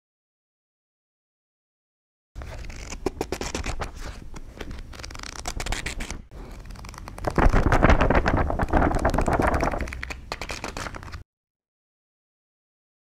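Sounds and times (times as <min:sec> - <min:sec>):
dense scratching and crackling: 0:02.4 - 0:11.2.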